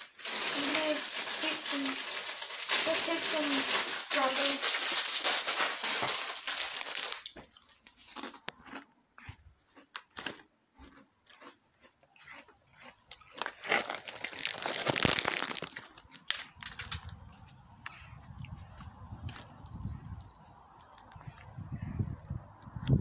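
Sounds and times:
crisp packet crinkling: 0.0 - 8.8, 9.7 - 17.6
short crunches and crackles: 0.0 - 21.6.

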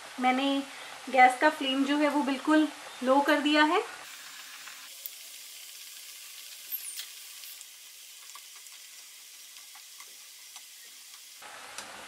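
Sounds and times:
dough sizzling in hot oil: 4.0 - 12.0.

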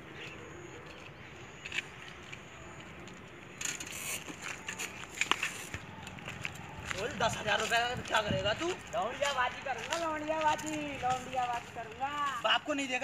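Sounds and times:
bicycle rattle: 3.5 - 12.2.

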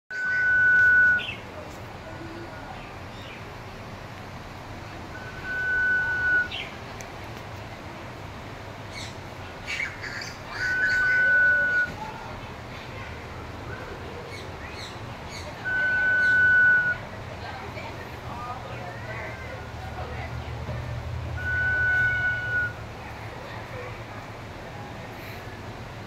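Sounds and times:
bird long thin whistles: 0.1 - 1.4, 5.2 - 6.7, 10.2 - 12.0, 15.6 - 17.0, 21.4 - 22.8.

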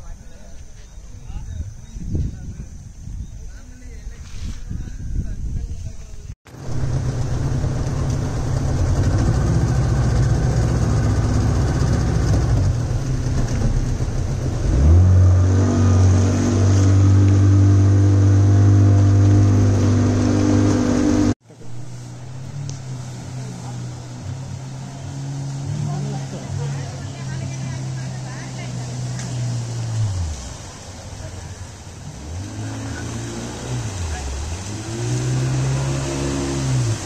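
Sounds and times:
wind noise: 0.0 - 21.4
water noise: 0.0 - 37.0
motorboat engine running: 6.5 - 37.0.

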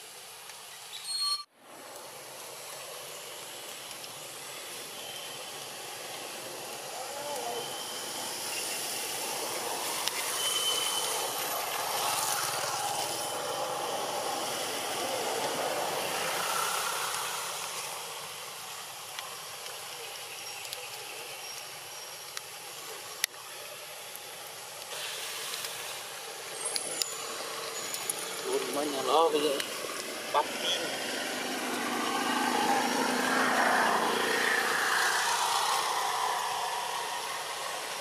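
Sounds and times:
outdoor background hiss: 0.0 - 38.0
faint high chirps: 10.1 - 11.4.

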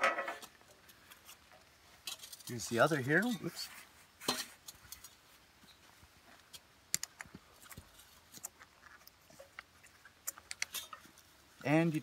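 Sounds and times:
metal couplers clicking and tapping: 6.5 - 11.1.

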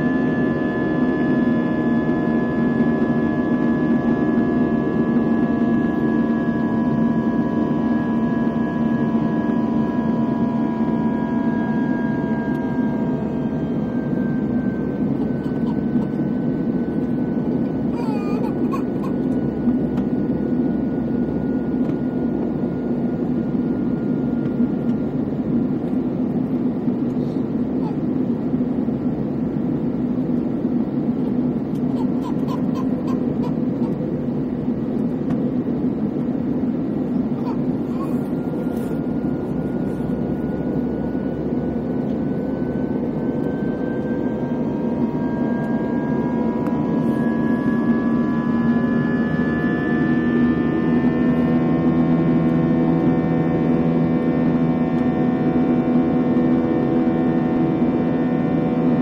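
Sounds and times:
airplane cabin engine and airflow noise: 0.0 - 59.0
thin jet engine whine: 0.0 - 59.0.

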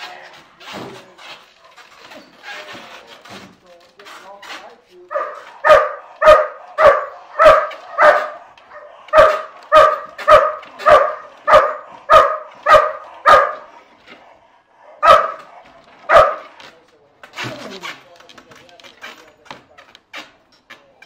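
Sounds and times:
large dog barking loudly: 5.1 - 13.9, 14.8 - 16.6.

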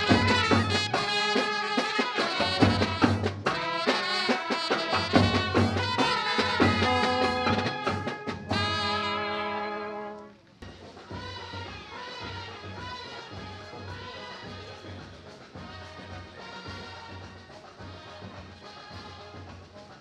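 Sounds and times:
steady drum beat: 0.0 - 9.4
brass band music: 0.0 - 10.5, 11.1 - 20.0.

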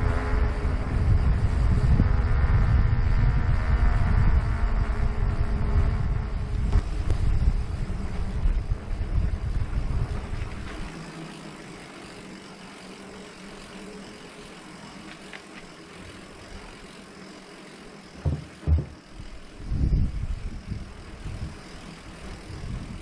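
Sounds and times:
wind rumbling on microphone: 0.0 - 11.2, 18.2 - 23.0
steady low hum: 0.0 - 23.0.

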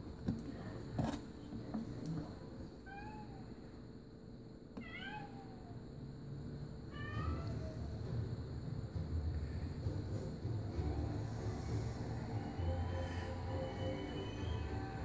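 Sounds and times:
cat meowing: 4.8 - 5.7.

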